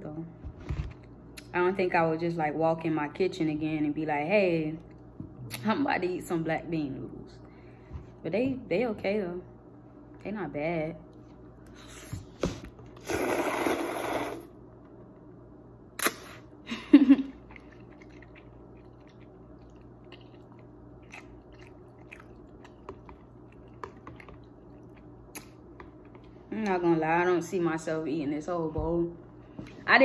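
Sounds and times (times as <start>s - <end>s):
person slurping noodles: 13.0s - 14.6s
wet chewing and mouth clicks: 17.4s - 26.4s.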